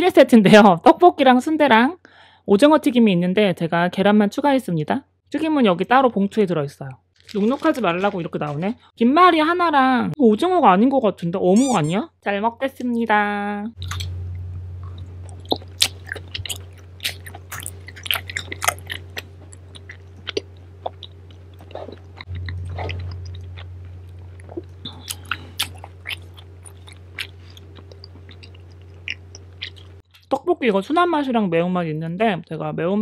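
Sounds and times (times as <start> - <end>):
low electrical hum: 0.0 - 33.0
chewing with mouth clicks: 14.8 - 30.3.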